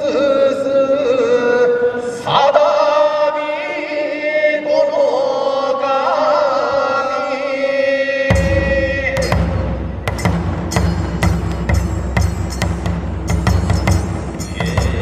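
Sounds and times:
deep drumming: 0:08.3 - 0:15.0
person chanting long notes: 0:14.4 - 0:15.0.

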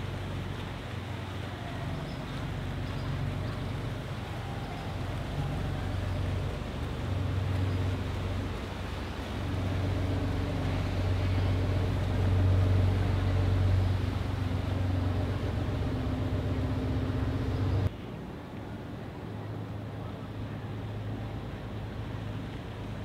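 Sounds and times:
boat engine droning: 0:00.0 - 0:17.9
water wash: 0:00.0 - 0:23.0.

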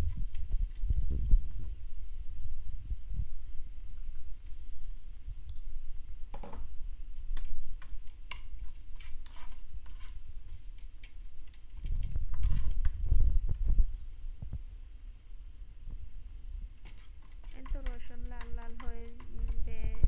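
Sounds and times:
spatula scraping pan: 0:07.8 - 0:10.9.

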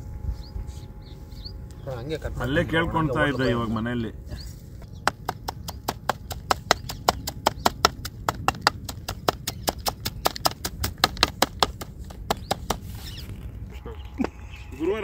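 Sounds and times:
cleaver chopping on wooden block: 0:05.0 - 0:12.8.

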